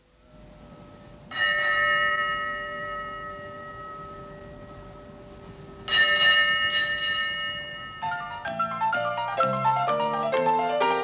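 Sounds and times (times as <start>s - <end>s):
ship's bell ringing: 1.3s - 9.7s.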